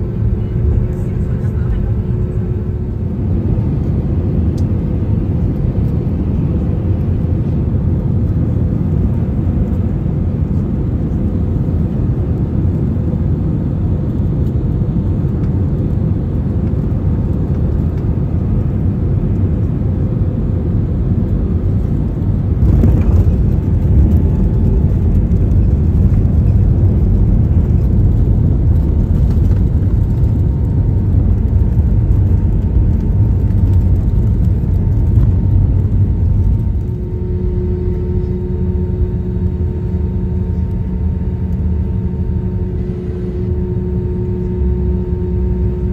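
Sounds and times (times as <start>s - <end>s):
engine whine: 0.0s - 45.9s
jet engines rumbling: 0.0s - 45.9s.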